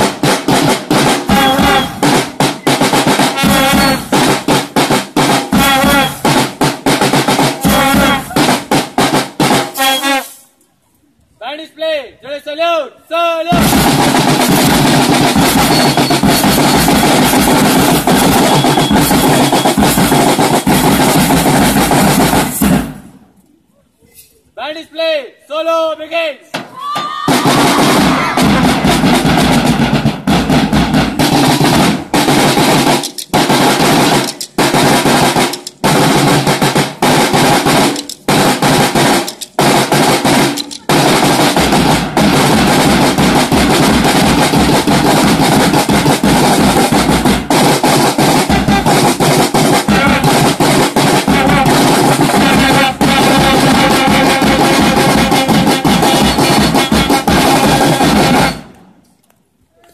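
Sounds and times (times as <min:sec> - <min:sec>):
drums playing beats and rolls: 0:00.0 - 0:10.4, 0:13.5 - 0:23.3, 0:26.5 - 0:58.8
brass horns: 0:01.0 - 0:06.6, 0:07.3 - 0:10.5, 0:13.5 - 0:23.0, 0:46.3 - 0:58.8.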